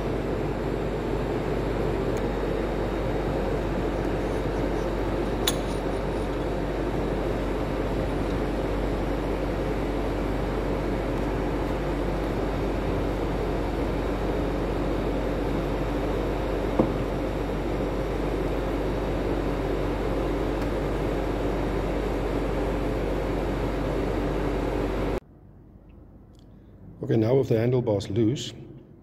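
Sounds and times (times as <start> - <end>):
machinery droning hum: 0.0 - 29.0
wrench clinking on metal bolt: 5.4 - 6.0.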